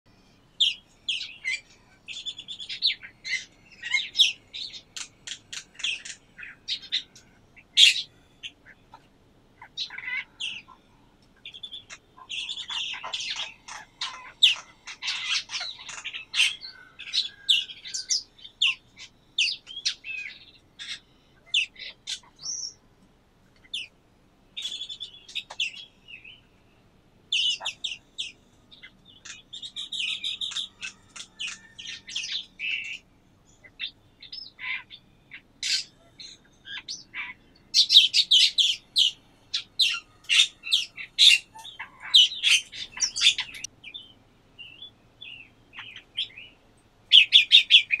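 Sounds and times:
songbirds chirping: 0.1 - 48.0.

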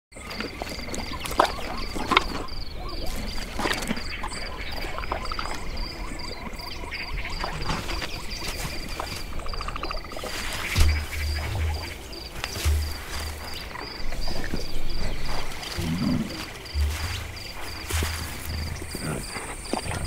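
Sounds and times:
high insect drone: 0.2 - 20.0
frog croaking trill: 10.8 - 20.0.

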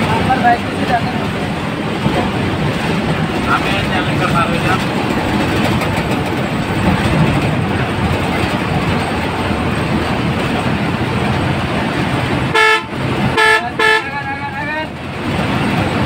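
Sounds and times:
bus engine and road noise: 0.0 - 16.0
loud horn blast: 12.5 - 14.5.

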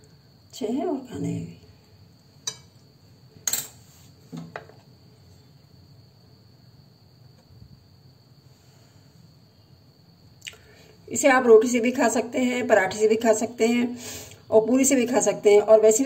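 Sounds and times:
faint steady high whine: 0.0 - 16.0.

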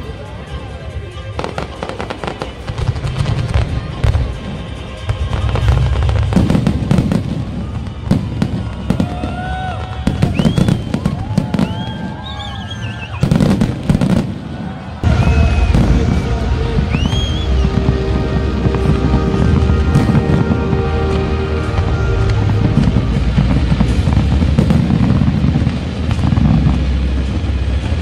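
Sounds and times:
fireworks bangs and crackles: 0.0 - 28.0
heavy low rumble: 13.4 - 28.0.

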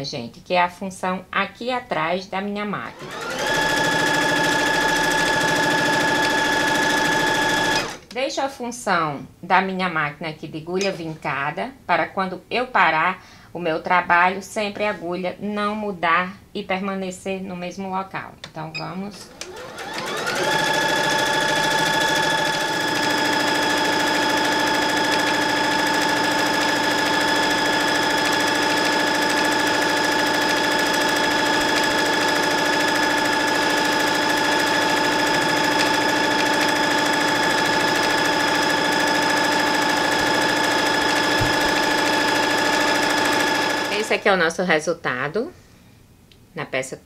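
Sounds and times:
sewing machine stitching rapidly: 2.9 - 8.1, 19.1 - 44.2.

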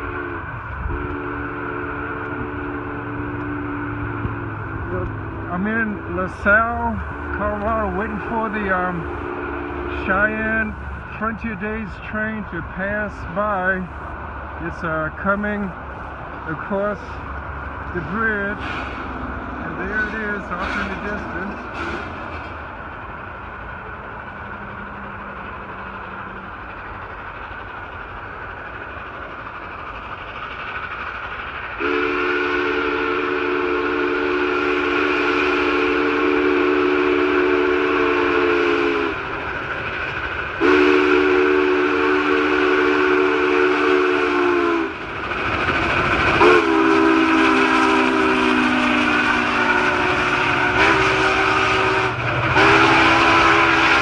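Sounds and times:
steam whistle blasts: 0.0 - 4.4, 31.8 - 39.2, 40.6 - 44.9, 46.4 - 54.0
train rumble: 0.0 - 54.0.

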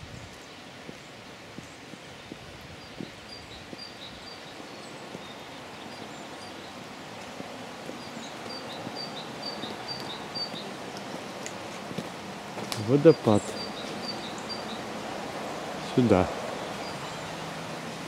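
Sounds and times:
steady background hiss: 0.0 - 18.0
small bird chirping: 8.0 - 10.7, 13.1 - 14.9.

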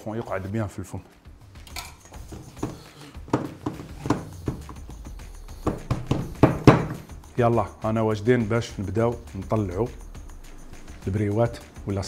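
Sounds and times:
spatula knocking against metal bowl: 2.3 - 4.9, 5.6 - 7.1.

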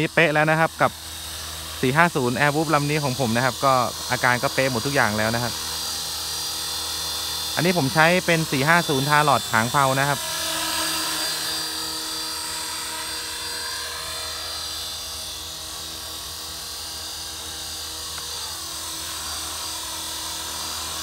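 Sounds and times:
rc helicopter motor whine: 0.0 - 21.0
rotors whirring: 0.0 - 21.0.

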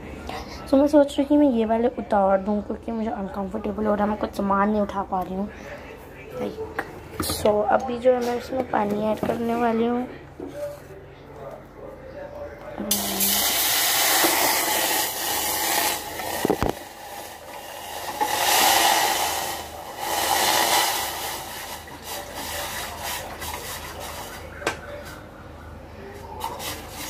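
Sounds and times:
water pouring into a saucepan: 12.9 - 24.2.

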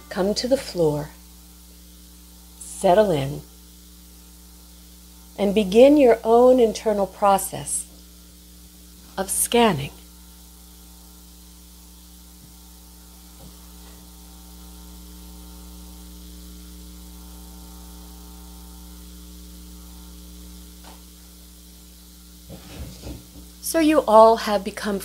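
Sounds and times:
electrical mains hum with hiss: 0.0 - 25.0.

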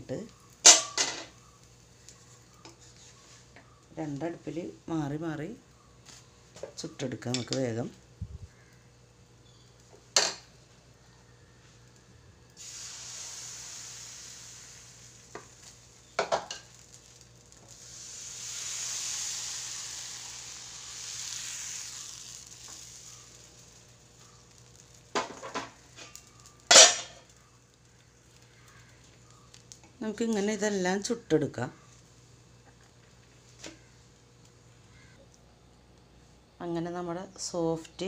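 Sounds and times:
batter sizzling in a pan: 0.0 - 35.2
pan clanking: 26.7 - 27.2.

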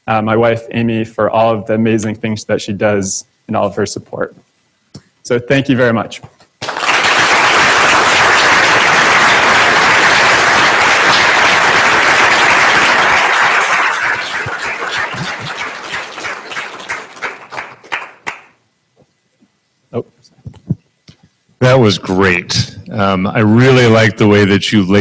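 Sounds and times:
audience applauding: 6.6 - 18.6.

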